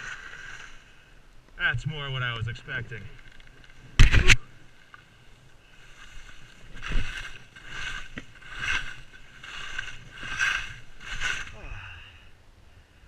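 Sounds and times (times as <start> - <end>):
skis carving on packed snow: 0.0 - 1.1, 4.8 - 11.9.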